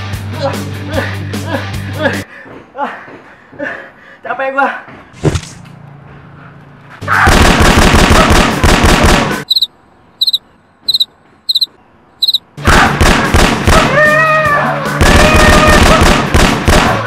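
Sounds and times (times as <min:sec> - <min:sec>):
rapid machine-gun fire: 0:07.3 - 0:09.4, 0:12.8 - 0:13.9, 0:15.0 - 0:17.0
short high chirps: 0:09.5 - 0:12.4.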